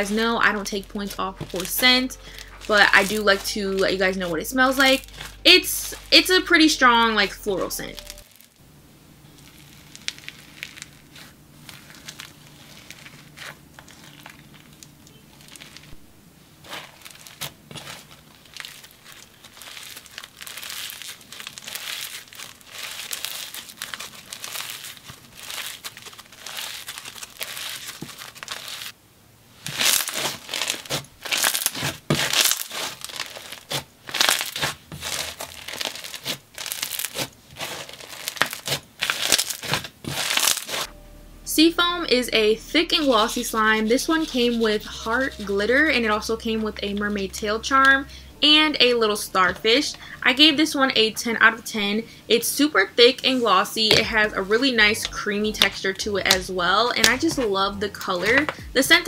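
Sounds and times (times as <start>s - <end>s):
slime squished with crunchy crackling: 0.0s - 8.6s, 9.2s - 29.0s, 29.6s - 40.9s.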